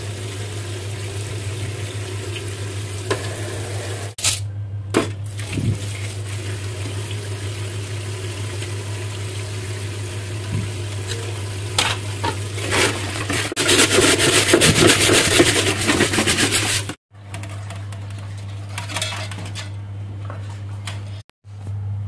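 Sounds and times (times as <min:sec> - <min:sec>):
tap water running into sink: 0:00.0 - 0:04.2
rapid scrubbing: 0:12.7 - 0:17.0.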